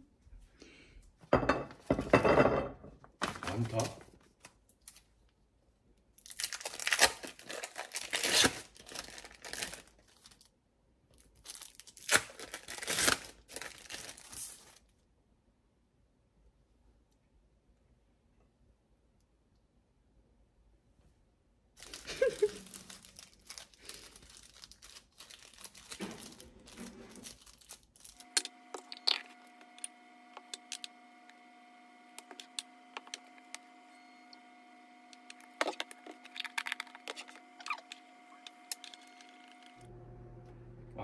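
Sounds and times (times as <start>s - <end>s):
plastic wrappers crinkling and tearing: 3.2s - 5.3s, 6.2s - 14.9s, 21.8s - 31.1s, 32.2s - 39.9s
steady hum: 28.2s - 41.0s
spoon scraping glass bowl: 28.3s - 30.9s.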